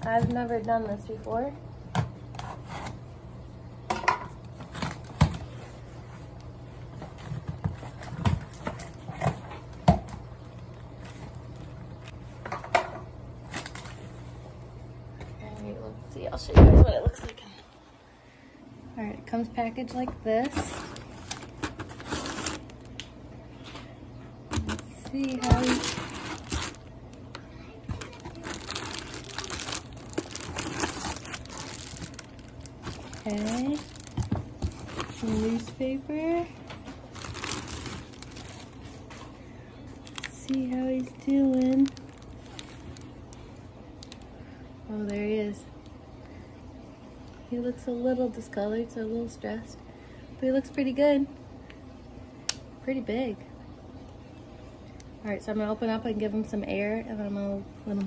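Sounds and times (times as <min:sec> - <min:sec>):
low steady hum: 0:00.0 - 0:58.0
foil liner crinkling: 0:13.4 - 0:14.2, 0:19.9 - 0:23.1, 0:24.5 - 0:27.3, 0:27.9 - 0:36.0, 0:36.7 - 0:44.3.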